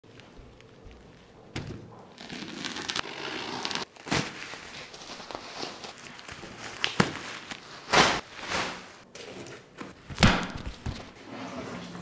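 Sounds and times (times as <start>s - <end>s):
bubble wrap crinkling: 2.1s - 9.1s.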